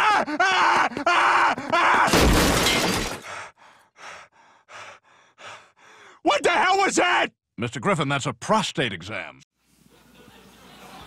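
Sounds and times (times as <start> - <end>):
glass jars smashing: 2.1 - 3.3.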